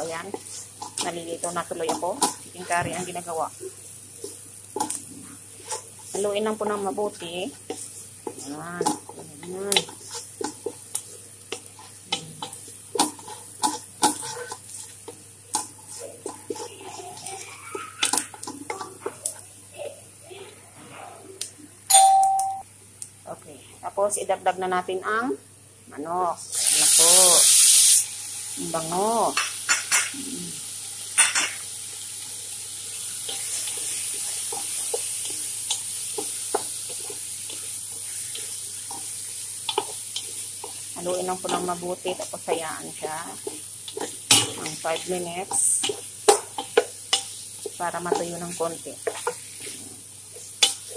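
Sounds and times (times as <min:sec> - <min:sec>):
spatula scraping frying pan: 0:00.0 - 0:03.4, 0:04.2 - 0:19.4, 0:33.2 - 0:50.9
faint frying sizzle: 0:00.0 - 0:50.9.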